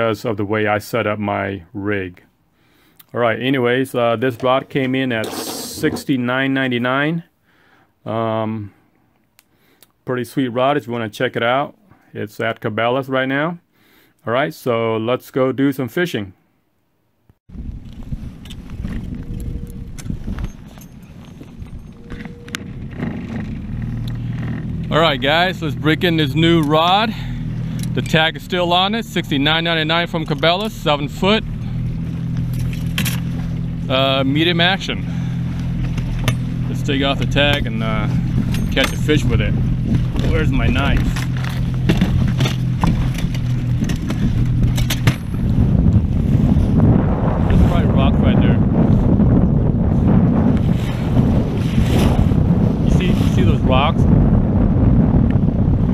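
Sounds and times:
wind rumbling on microphone: 17.5s - 55.9s
boat engine humming: 17.6s - 55.9s
clicks and knocks of gear: 17.8s - 24.9s, 32.3s - 33.7s, 39.9s - 45.3s
water rushing along hull: 50.5s - 54.4s.

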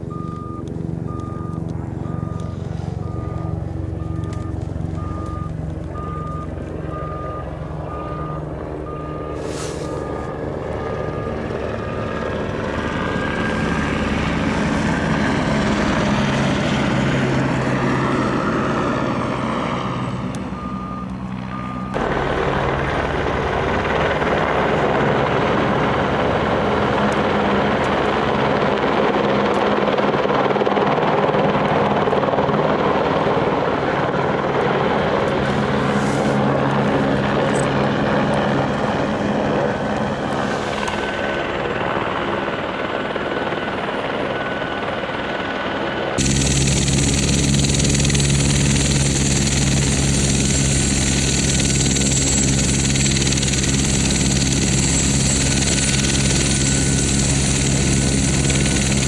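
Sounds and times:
helicopter rotor and engine: 0.0s - 59.0s
beeps: 0.1s - 10.4s, 20.6s - 22.0s.

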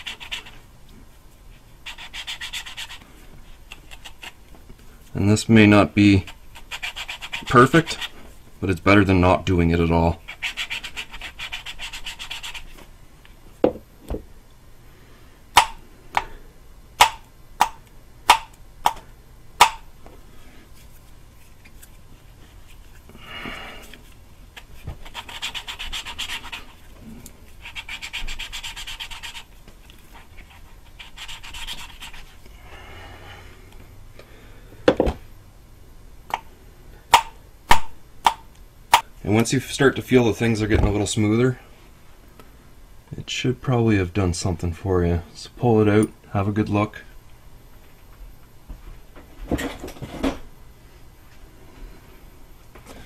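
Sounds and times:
valve tapping on seat: 19.6s - 19.8s.

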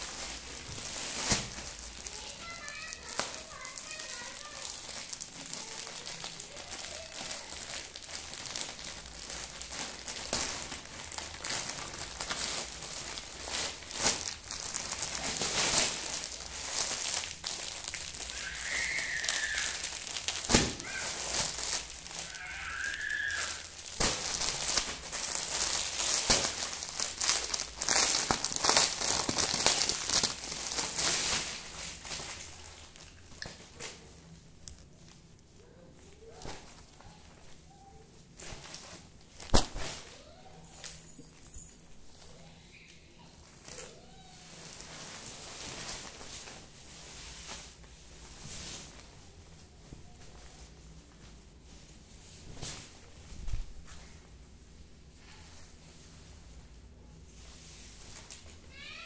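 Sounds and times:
plastic packaging crinkling: 0.0s - 34.0s.

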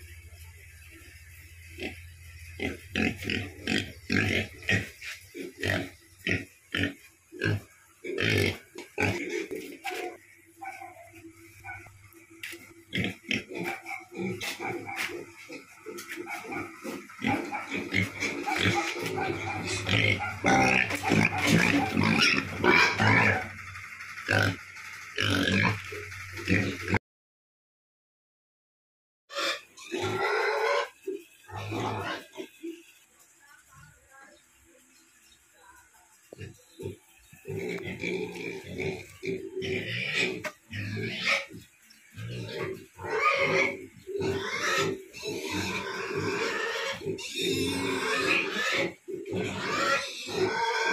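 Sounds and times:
pig grunting: 2.6s - 11.0s, 12.9s - 27.0s, 29.3s - 32.8s, 36.4s - 50.9s.

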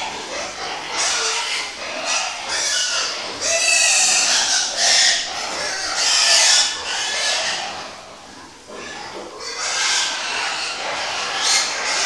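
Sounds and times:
pigs squealing: 0.0s - 12.0s.

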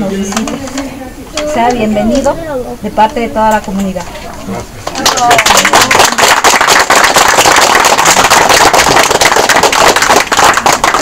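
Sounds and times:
group applauding: 4.5s - 11.0s.

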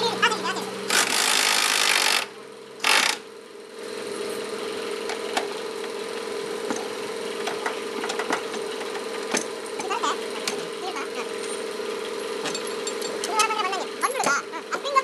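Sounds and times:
workshop hum: 0.0s - 15.0s
pneumatic impact wrench: 0.9s - 3.3s.

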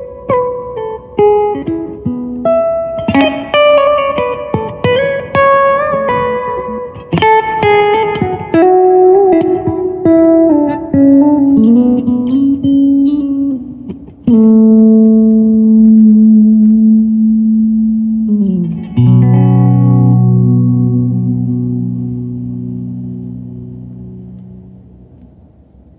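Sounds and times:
electric guitar through amplifier: 0.0s - 25.9s.

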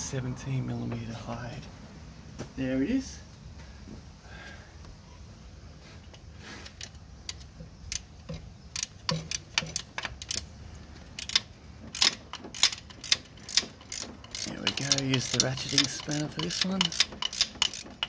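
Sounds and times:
ratchet clicking on bolts: 7.2s - 10.5s, 11.2s - 18.0s.

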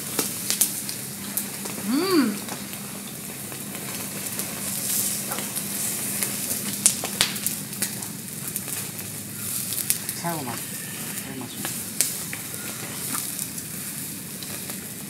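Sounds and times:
sharp pops of fire: 0.0s - 1.8s, 2.4s - 10.3s
fire crackling and hissing: 0.0s - 15.0s.

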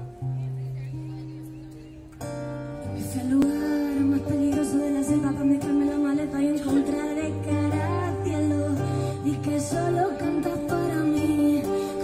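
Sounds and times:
acoustic guitars playing: 0.0s - 12.0s
woman singing: 2.8s - 12.0s.

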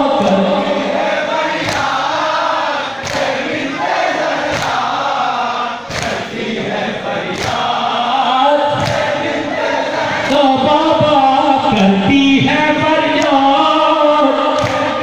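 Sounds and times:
men chanting a lament: 0.0s - 15.0s
rhythmic slaps: 0.1s - 15.0s.

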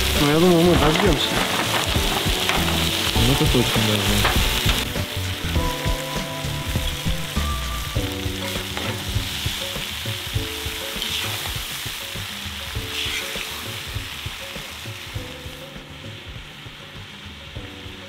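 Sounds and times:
background music with held notes: 0.0s - 18.0s
food frying and sizzling: 0.0s - 18.0s.

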